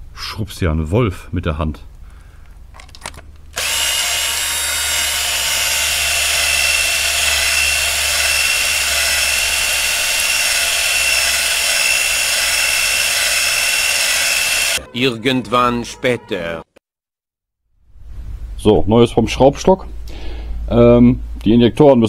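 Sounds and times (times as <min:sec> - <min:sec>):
cordless drill whining: 0:03.6 - 0:14.8.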